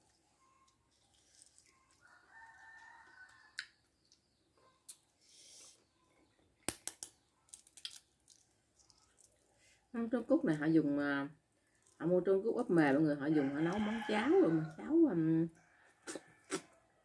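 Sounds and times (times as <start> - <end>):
rooster crowing faintly: 1.4 - 3.8
spoon cracking egg shells: 6.7 - 9.4.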